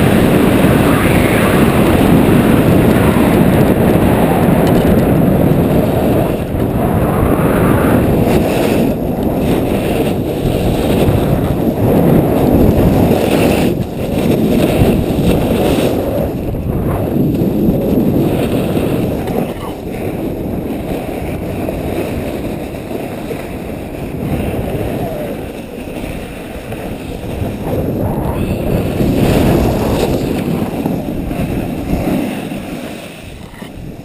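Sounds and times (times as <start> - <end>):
skis scraping snow: 0.0 - 34.0
wind buffeting microphone: 0.0 - 34.0.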